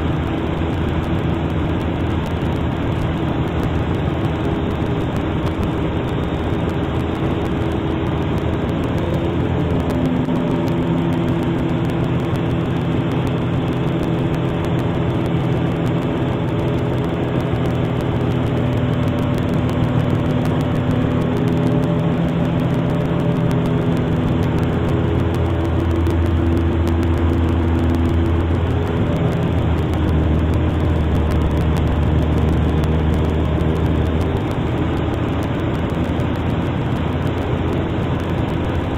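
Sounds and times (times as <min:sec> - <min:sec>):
deep hum: 0:00.0 - 0:38.9
propeller plane engine droning: 0:00.0 - 0:38.9.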